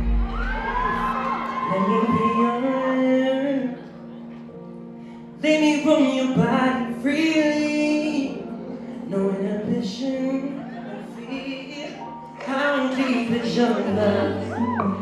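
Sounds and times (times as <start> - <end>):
backing track: 0.0 - 2.8
man singing into a microphone: 1.7 - 3.9, 5.4 - 15.0.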